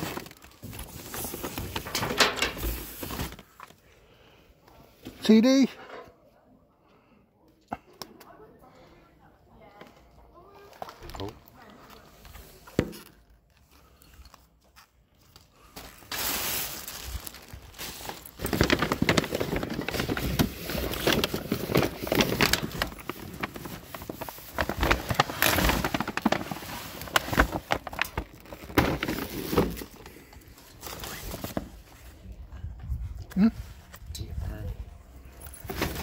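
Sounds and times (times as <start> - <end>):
cardboard and hard items clattering: 0.0 - 3.8, 15.8 - 31.9, 35.4 - 36.0
plastic bags crinkling: 0.0 - 3.8, 13.1 - 31.8.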